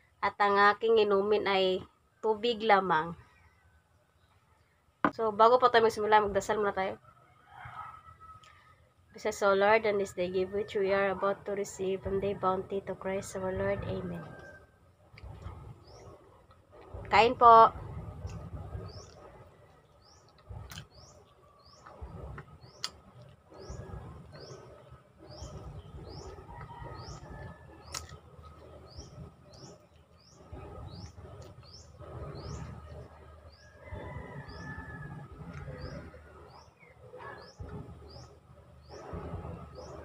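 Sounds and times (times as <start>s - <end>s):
bird chirping: 18.7s - 40.0s.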